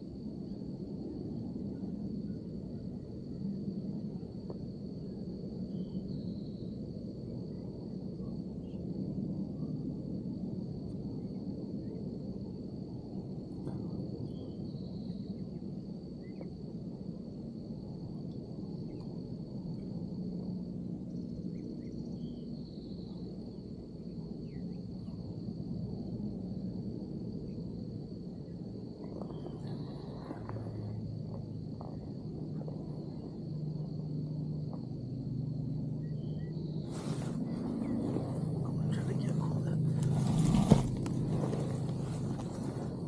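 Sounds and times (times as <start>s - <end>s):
high-pitched insect trill: 0.0s - 43.0s
low rumble: 28.8s - 43.0s
faint bird chirps: 29.0s - 30.6s
rustling: 36.9s - 38.4s, 39.8s - 43.0s.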